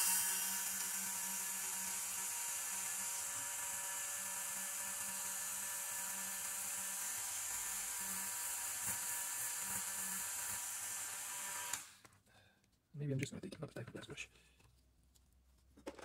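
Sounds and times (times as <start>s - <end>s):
rotary tool whine: 0.0s - 11.9s.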